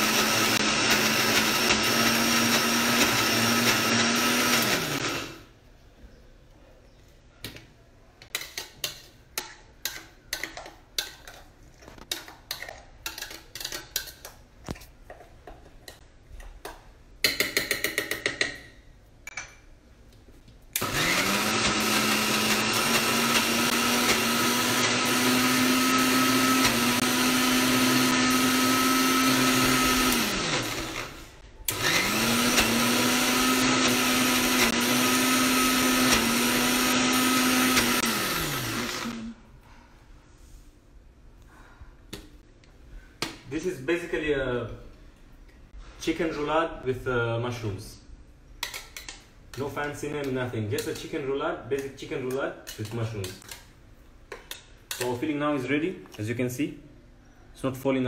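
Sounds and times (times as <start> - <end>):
mixer grinder motor running: 0.0 - 5.4, 20.8 - 39.4.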